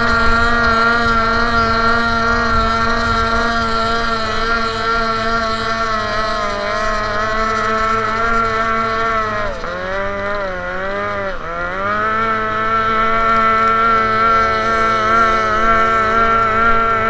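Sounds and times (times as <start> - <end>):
boat engine running at high revs: 0.0 - 17.0.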